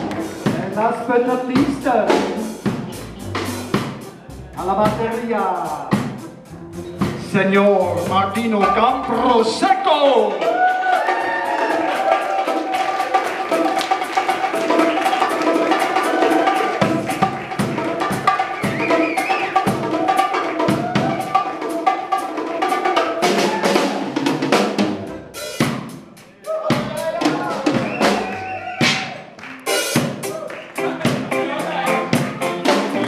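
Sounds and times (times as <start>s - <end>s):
drum kit playing: 0.0s - 33.0s
electric guitar chords: 29.6s - 33.0s.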